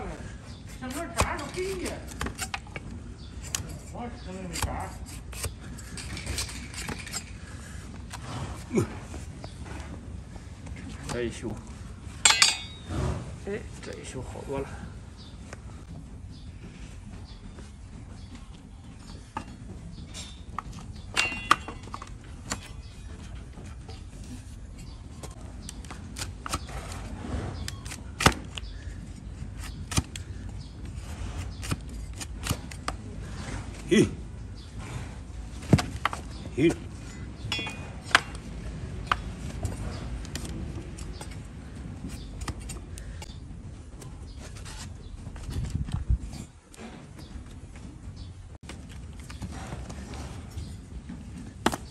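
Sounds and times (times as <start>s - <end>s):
hoof knife scraping horn: 0.6s - 8.7s, 24.2s - 33.9s, 39.1s - 43.4s.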